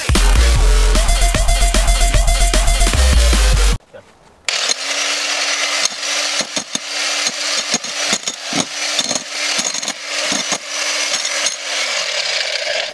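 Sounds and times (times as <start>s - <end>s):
electric jackhammer motor hum: 4.5s - 12.9s.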